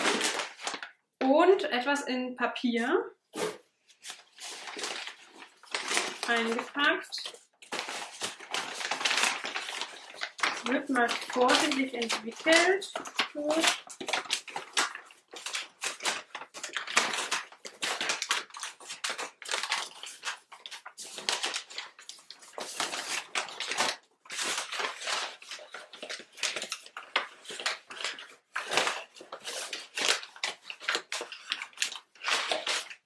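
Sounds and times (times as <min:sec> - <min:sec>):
packing paper crinkling: 0:00.0 - 0:00.9, 0:03.4 - 0:33.0.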